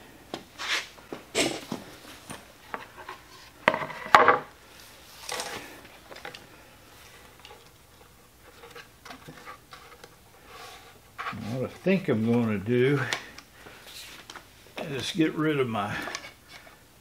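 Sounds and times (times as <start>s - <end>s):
wood and tools knocking on metal bench: 3.6s - 4.5s.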